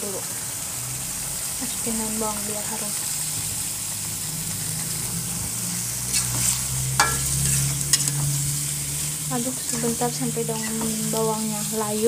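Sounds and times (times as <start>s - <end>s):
sauce sizzling in a wok: 0.0s - 12.0s
metal ladle clicking on pan: 7.0s - 7.3s.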